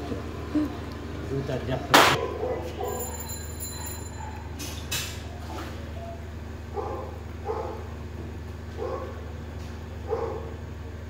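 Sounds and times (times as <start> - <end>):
steady low hum: 0.0 - 11.0
dog barking: 2.1 - 4.6, 6.0 - 8.0, 8.8 - 9.2, 10.0 - 10.6.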